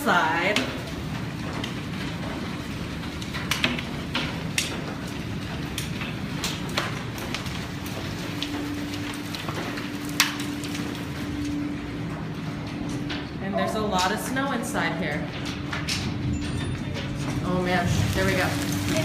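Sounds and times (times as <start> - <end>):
rush of hail and rain: 0.0 - 11.4, 17.5 - 19.0
hailstones clicking on glass: 0.0 - 11.8, 15.4 - 19.0.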